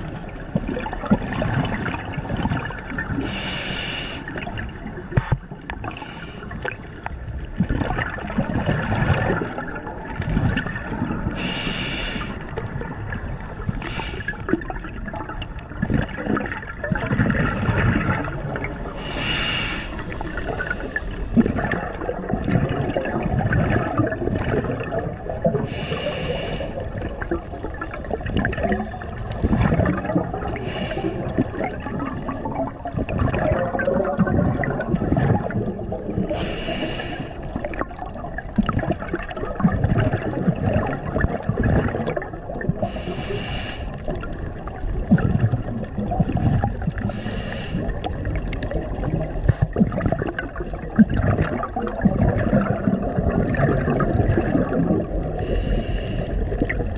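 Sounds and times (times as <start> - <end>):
exhaled bubbles gurgling: 0.0 - 56.9
regulator inhalation hiss: 3.2 - 4.3, 11.4 - 12.4, 19.0 - 21.1, 25.7 - 26.8, 30.6 - 31.2, 36.4 - 37.4, 42.9 - 44.0, 47.1 - 47.8, 55.4 - 56.4.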